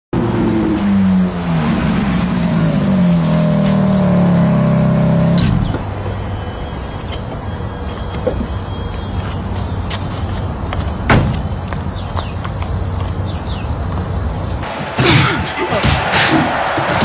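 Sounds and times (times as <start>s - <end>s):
car engine running at low revs: 0.2s - 6.7s.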